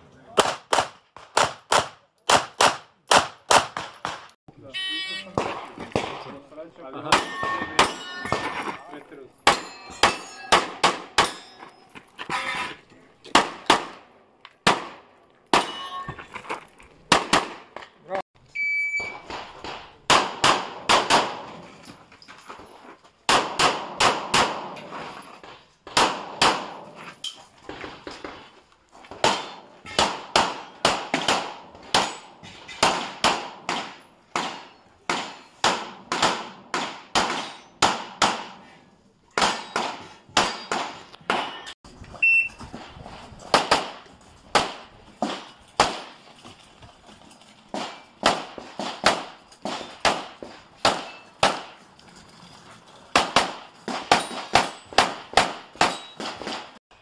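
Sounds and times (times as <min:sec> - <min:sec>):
pistol shots: 0:00.4 - 0:04.4, 0:09.4 - 0:11.4, 0:14.6 - 0:15.8, 0:17.1 - 0:17.7, 0:19.3 - 0:21.6, 0:23.3 - 0:24.8, 0:25.9 - 0:26.9, 0:29.2 - 0:38.7, 0:39.4 - 0:41.6, 0:43.5 - 0:46.2, 0:47.7 - 0:51.8, 0:53.1 - 0:56.8.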